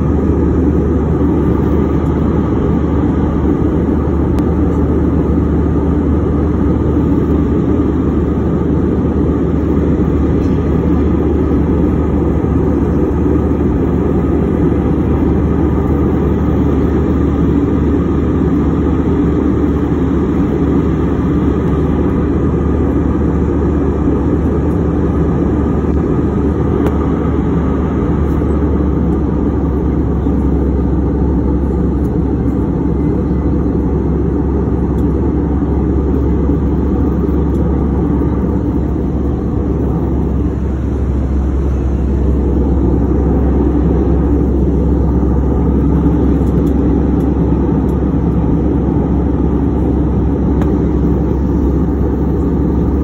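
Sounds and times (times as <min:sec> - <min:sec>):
airliner cabin noise: 0:00.0 - 0:53.0.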